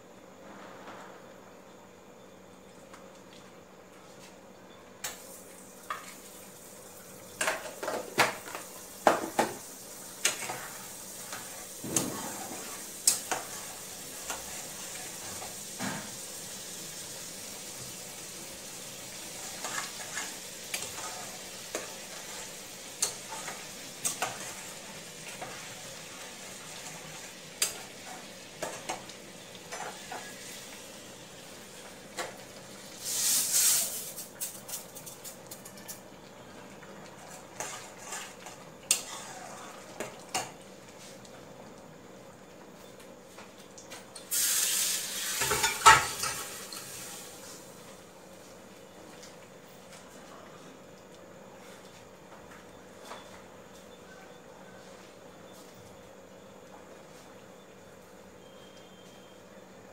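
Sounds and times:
butter sizzling in a pan: 5.2 - 34.3, 44.3 - 47.8.

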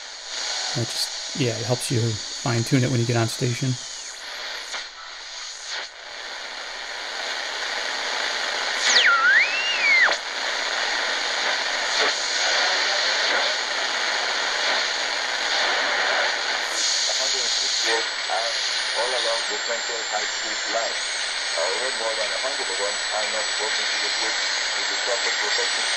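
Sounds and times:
radio static hiss: 0.0 - 25.9
sliding whistling tone: 8.9 - 10.1.

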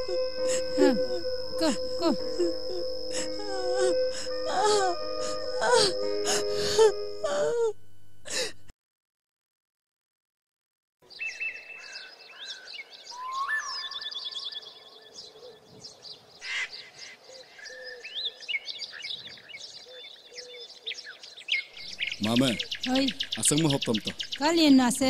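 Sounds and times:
music: 0.0 - 7.6
person crying: 0.0 - 8.6
small birds chirping: 11.1 - 25.0.

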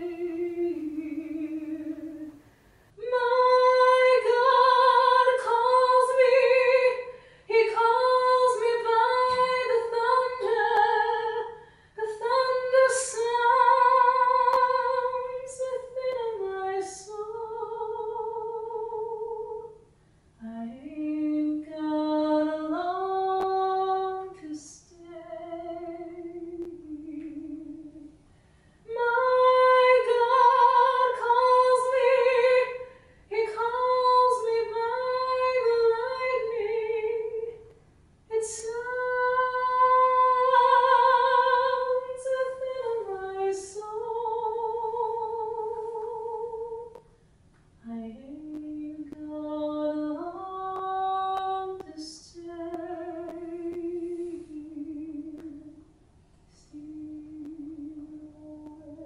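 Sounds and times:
woman singing unaccompanied: 0.0 - 2.4, 3.0 - 19.8, 20.4 - 28.2, 28.9 - 37.7, 38.3 - 47.0, 47.8 - 55.8, 56.5 - 59.0
breaths: 7.1 - 7.5, 11.6 - 12.0, 19.9 - 20.4, 28.2 - 28.9, 32.8 - 33.3.

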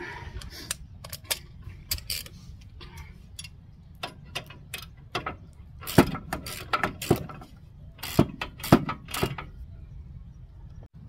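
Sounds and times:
wrench clicking and clanking: 0.7 - 2.4, 3.3 - 9.5.

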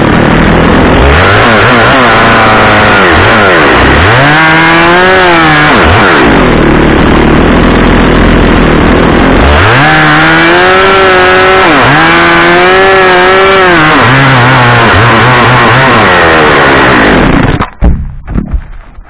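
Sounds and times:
chainsaw cutting wood: 0.0 - 18.0
heavy thud of trunk falling: 17.4 - 19.0.

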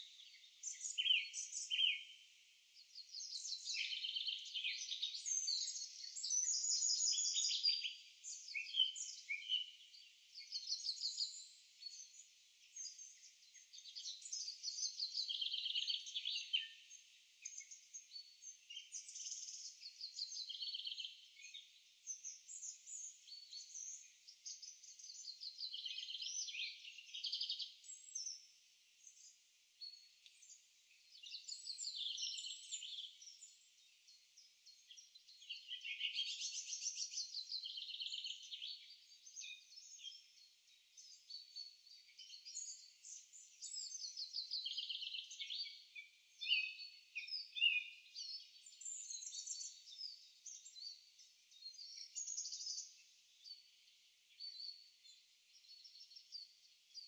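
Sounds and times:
songbirds singing: 0.0 - 57.0.

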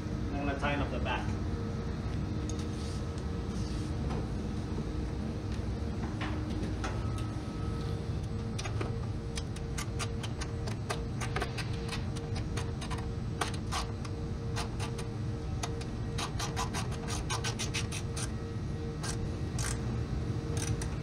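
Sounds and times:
steady low hum: 0.0 - 21.0
ratchet wrench clicking: 19.6 - 19.8.

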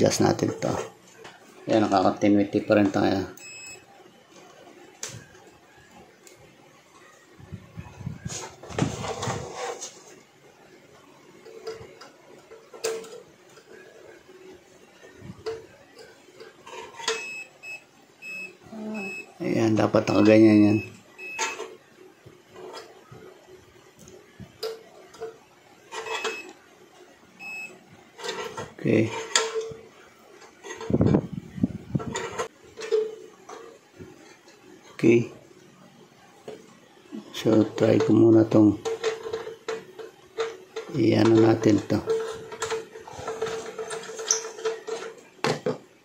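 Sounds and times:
multimeter continuity beeps: 2.5 - 3.9, 17.0 - 21.7, 26.0 - 26.6, 27.4 - 27.8.

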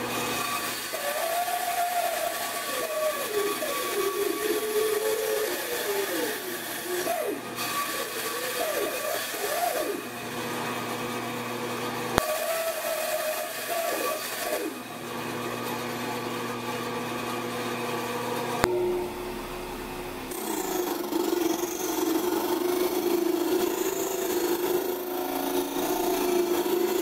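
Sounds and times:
band saw cutting plywood: 0.0 - 27.0
disc sander running: 0.0 - 27.0
plywood rubbing on sanding disc: 20.3 - 27.0.

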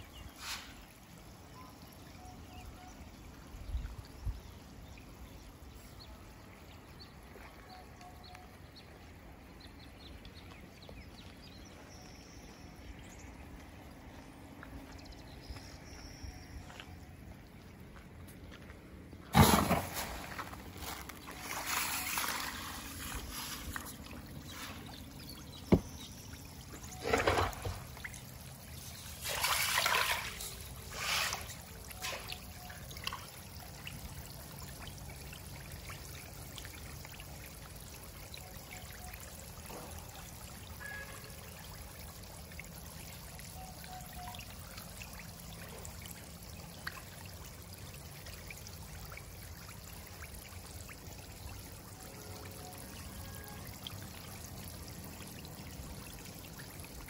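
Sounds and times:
fish splashing at surface: 19.3 - 24.9, 28.9 - 32.5.

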